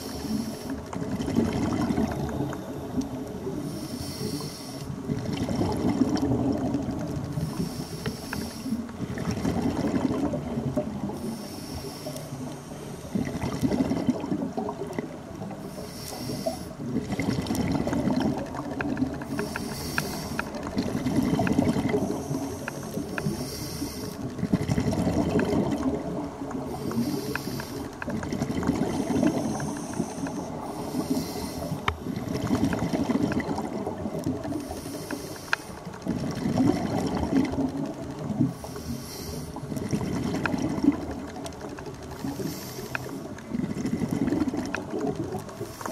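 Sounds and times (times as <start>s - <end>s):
underwater breath hiss: 0.0s - 0.9s, 2.0s - 5.0s, 7.3s - 8.9s, 11.0s - 13.6s, 15.6s - 16.8s, 19.3s - 20.6s, 21.8s - 24.3s, 26.6s - 28.0s, 28.8s - 32.5s, 34.4s - 35.8s, 38.5s - 39.8s, 42.2s - 43.3s, 45.6s - 45.9s
rough bubbling: 0.0s - 7.8s, 8.4s - 11.4s, 13.1s - 23.5s, 24.1s - 35.2s, 35.8s - 45.9s.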